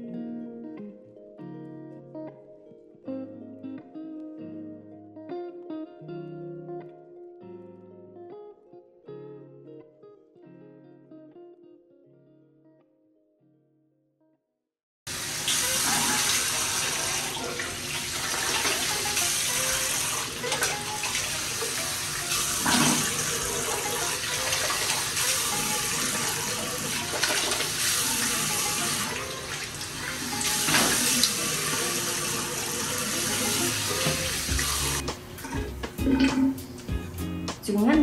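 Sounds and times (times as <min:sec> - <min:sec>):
sink tap running: 0:15.1 - 0:36.6
water splashing on face: 0:15.2 - 0:35.0.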